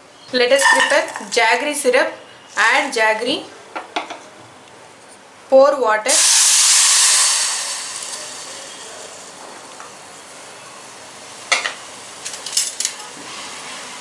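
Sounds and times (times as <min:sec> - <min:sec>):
faint steady hiss: 0:00.0 - 0:14.0.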